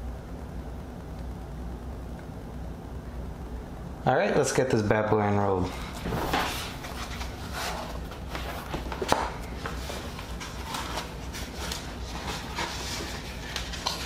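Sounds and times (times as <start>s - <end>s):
mouse pad rustling and scuffing: 5.7s - 14.0s.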